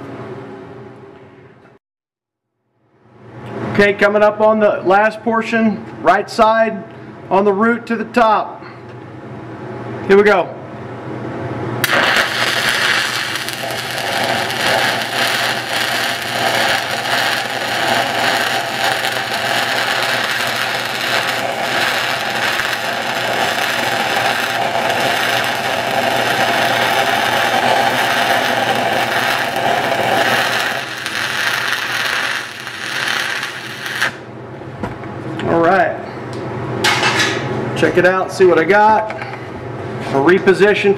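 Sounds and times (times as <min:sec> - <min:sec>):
welding arc crackling: 0:11.8 - 0:34.3.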